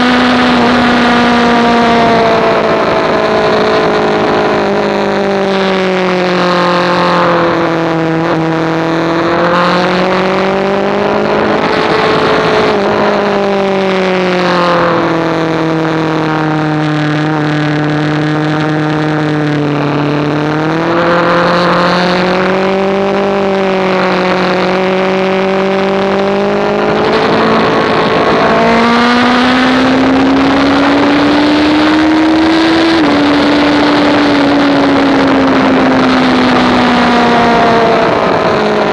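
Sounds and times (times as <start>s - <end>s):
wind rush: 0.0s - 16.2s, 16.9s - 38.9s
motorcycle engine revving: 0.0s - 38.9s.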